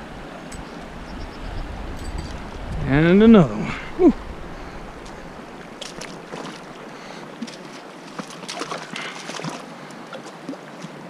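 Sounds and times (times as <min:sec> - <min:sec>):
river water rushing over rocks: 0:00.0 - 0:11.0
small water splashes: 0:04.6 - 0:11.0.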